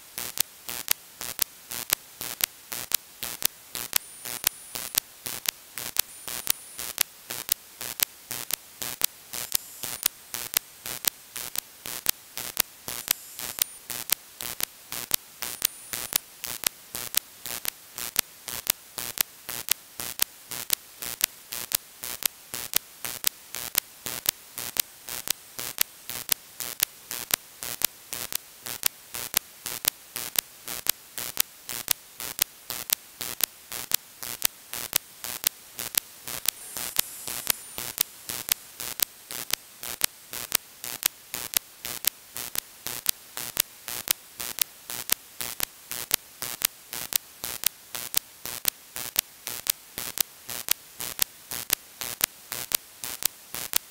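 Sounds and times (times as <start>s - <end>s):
radio static hiss: 3.3s - 16.3s, 35.2s - 40.0s.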